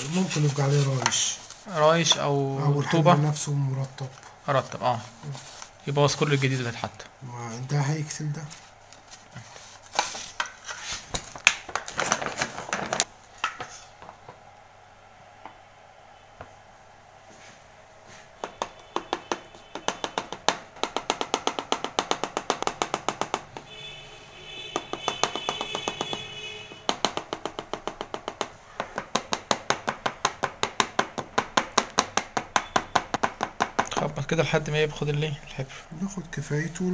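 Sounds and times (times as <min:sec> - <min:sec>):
rapid even tapping: 0:18.4 - 0:23.7, 0:24.6 - 0:35.4.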